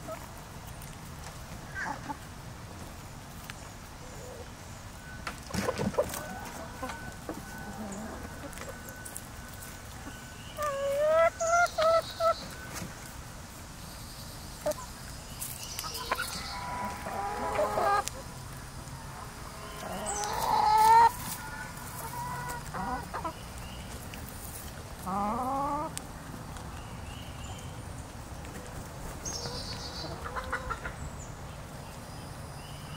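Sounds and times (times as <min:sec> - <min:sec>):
hens clucking and calling: 0:01.6 - 0:02.4, 0:03.5 - 0:13.2, 0:14.6 - 0:26.8, 0:28.4 - 0:31.2.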